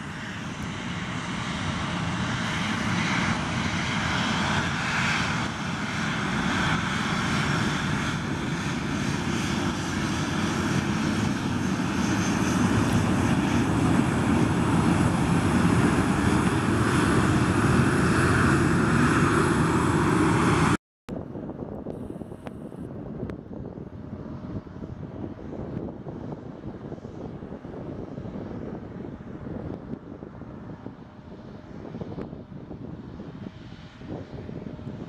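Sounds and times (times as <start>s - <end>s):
jet engines roaring: 0.0s - 20.8s.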